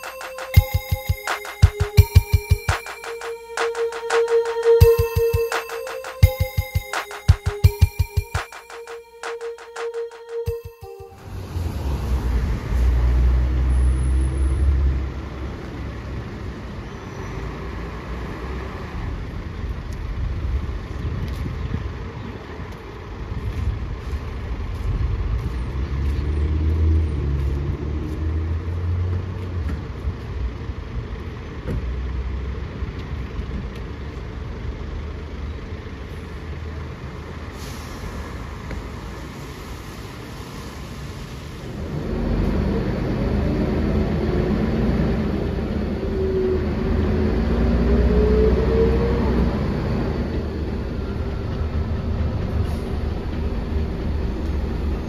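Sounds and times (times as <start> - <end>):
bus diesel engine: 11.2 - 55.0.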